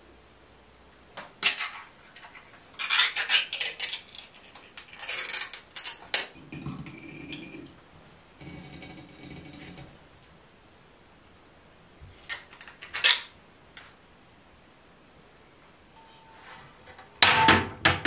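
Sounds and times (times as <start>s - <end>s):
metal spoon scraping a tin: 1.5s - 6.0s.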